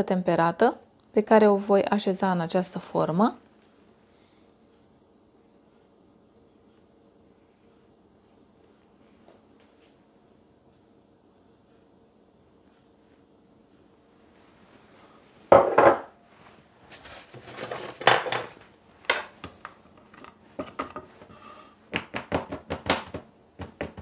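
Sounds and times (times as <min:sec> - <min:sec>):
mould knocking on wooden counter: 0:15.5 - 0:16.1.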